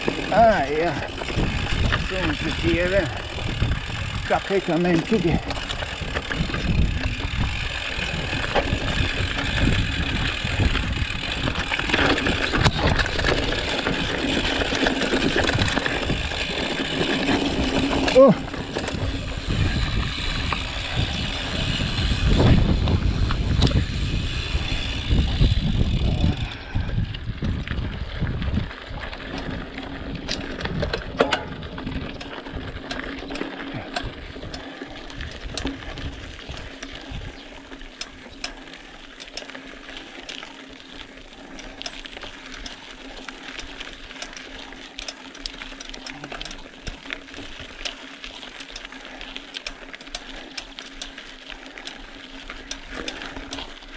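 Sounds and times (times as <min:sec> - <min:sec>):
wind rumble on microphone: 0:00.0 - 0:32.9, 0:33.7 - 0:37.6
bike rattling over stones: 0:00.0 - 0:53.9.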